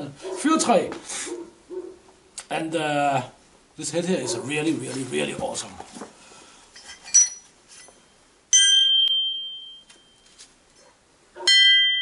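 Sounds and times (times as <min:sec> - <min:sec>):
axe head ringing when struck: 0:08.5 - 0:10.2.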